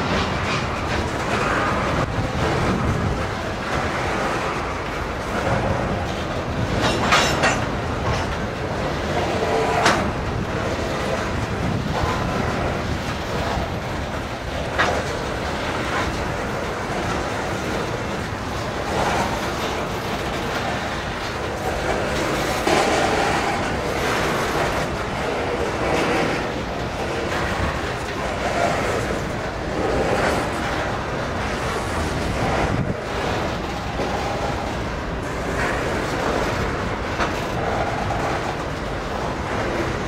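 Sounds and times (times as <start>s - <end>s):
train wheels rumbling on rail: 0.0s - 40.0s
wheel and coupling clanks: 6.2s - 8.5s.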